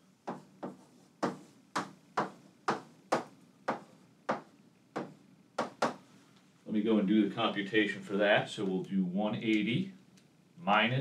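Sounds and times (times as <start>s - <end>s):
chalk tapping on chalkboard: 0.2s - 6.0s.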